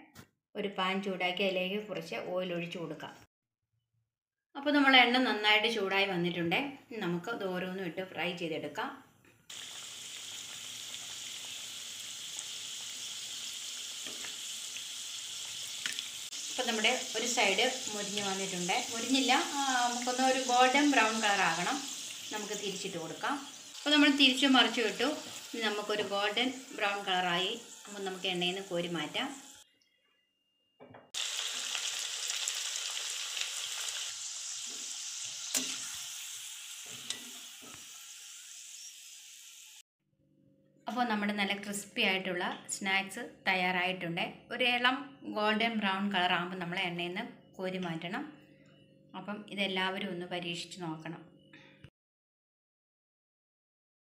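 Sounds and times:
pastry deep-frying in hot oil: 0:09.5 - 0:29.6, 0:31.1 - 0:39.8.

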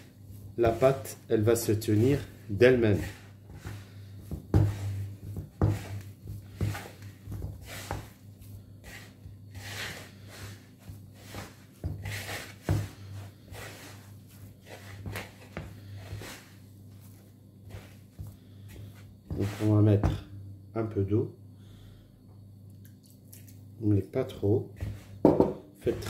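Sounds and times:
hands kneading dough: 0:00.0 - 0:20.3, 0:24.4 - 0:26.0
steady low hum: 0:00.0 - 0:26.0
dull knocks on wooden bowl: 0:25.2 - 0:25.7.

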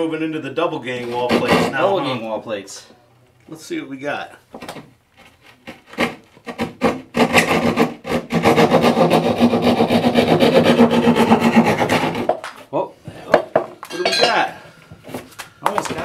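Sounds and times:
hand saw cutting drywall: 0:01.1 - 0:01.9, 0:05.2 - 0:12.5.

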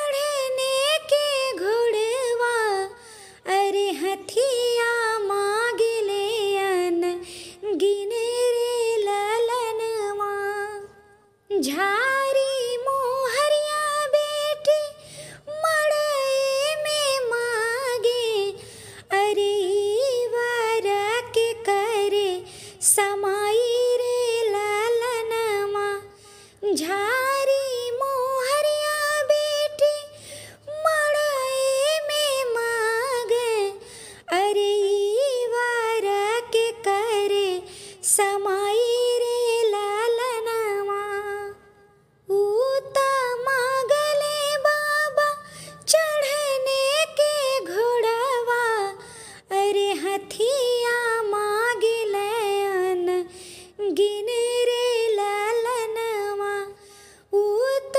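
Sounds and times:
woman singing a folk song: 0:00.0 - 0:41.6, 0:42.3 - 0:57.9.

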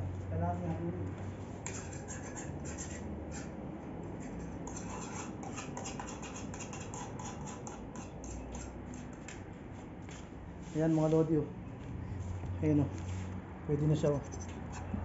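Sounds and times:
utensil scraping frying pan: 0:04.2 - 0:09.1.

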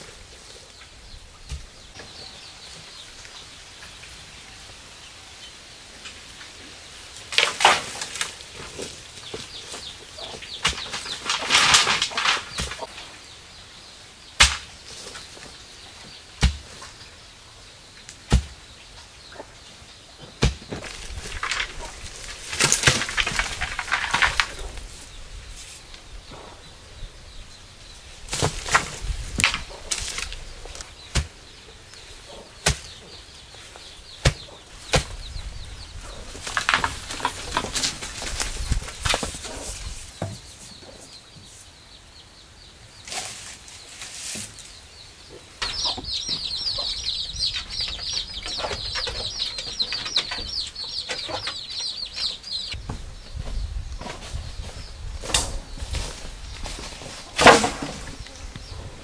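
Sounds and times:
bamboo clattering and rustling: 0:06.0 - 0:13.4, 0:14.4 - 0:17.2, 0:18.0 - 0:26.7, 0:27.8 - 0:41.6, 0:43.0 - 0:59.0
hollow knocks of bamboo poles: 0:14.4 - 0:14.8, 0:20.2 - 0:24.6.

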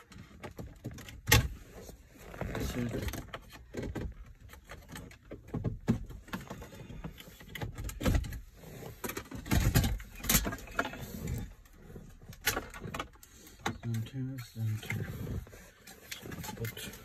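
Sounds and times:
plastic and metal clicks and rattles: 0:02.7 - 0:15.1.

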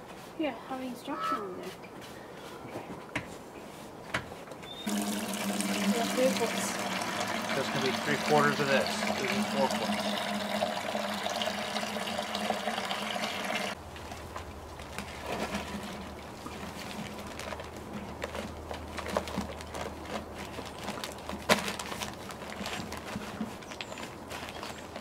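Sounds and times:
water pouring into plastic bucket: 0:04.9 - 0:13.8.

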